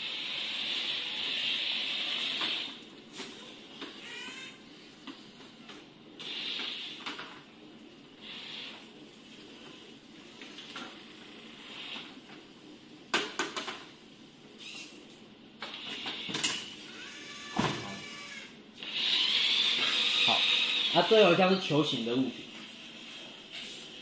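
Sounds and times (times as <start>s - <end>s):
robot arm motor running: 0.0s - 2.8s, 16.9s - 21.3s.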